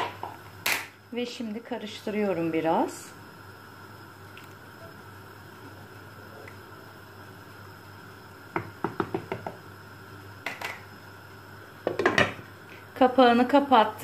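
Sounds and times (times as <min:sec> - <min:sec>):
light knocks against cooking pot: 0:08.5 - 0:09.6, 0:11.8 - 0:12.4.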